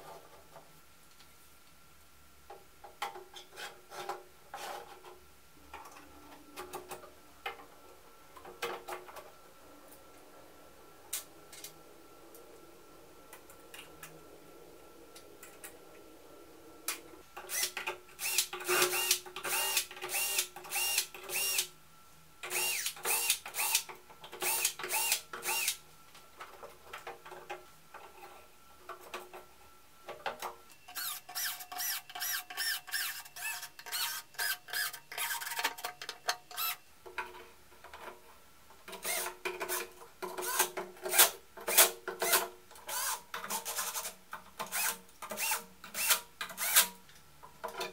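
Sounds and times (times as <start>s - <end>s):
cordless drill driving screws: 17.5s - 21.7s, 22.5s - 23.8s, 24.4s - 25.8s, 30.9s - 35.6s, 39.0s - 39.3s, 44.7s - 46.9s.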